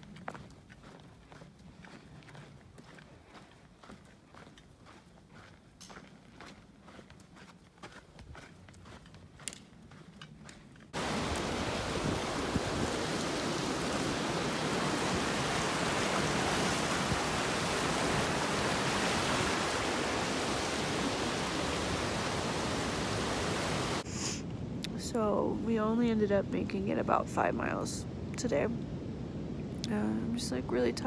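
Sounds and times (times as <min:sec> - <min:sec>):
faint footsteps on a trail: 0:00.0 - 0:13.2
river rushing over rocks: 0:11.0 - 0:24.0.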